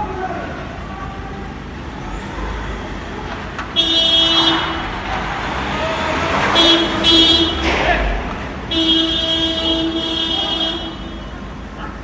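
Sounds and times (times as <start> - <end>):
street noise: 0.0 - 12.0
vehicle horn blast: 3.8 - 4.8, 6.5 - 7.6, 8.7 - 11.4.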